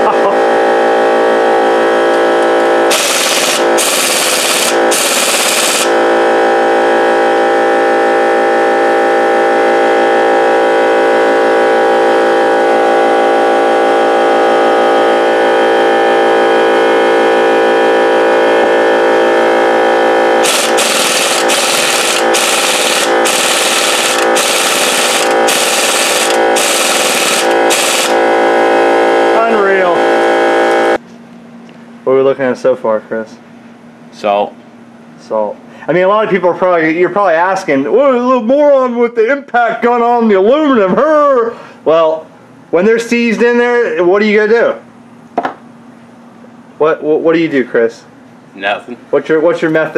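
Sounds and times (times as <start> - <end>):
steady droning hum: 0.0 - 49.9
pneumatic impact gun hammering: 2.9 - 6.0, 20.4 - 28.2.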